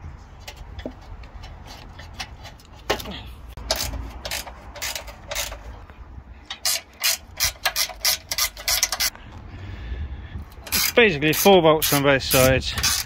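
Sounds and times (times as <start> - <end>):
ratchet spanner clicking: 3.6 - 5.8, 6.5 - 9.1, 10.5 - 13.0.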